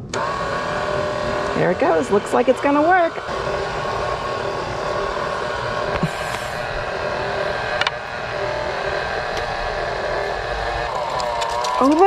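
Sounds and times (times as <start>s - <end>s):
stand mixer motor running: 0.0s - 12.0s.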